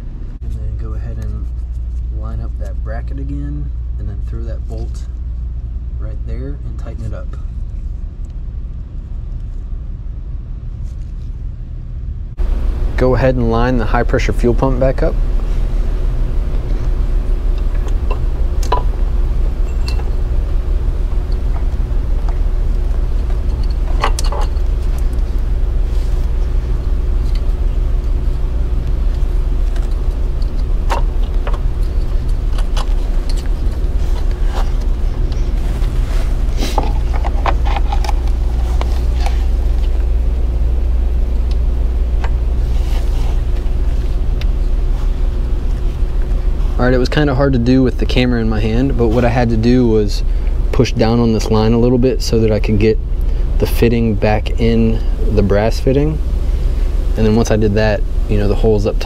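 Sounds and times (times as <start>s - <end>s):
low background hum: 0.0s - 59.0s.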